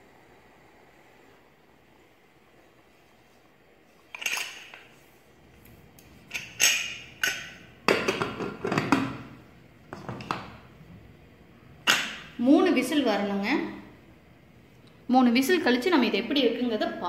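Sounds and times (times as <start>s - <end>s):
metal lid clanking: 6.3s - 9.2s, 11.8s - 12.3s.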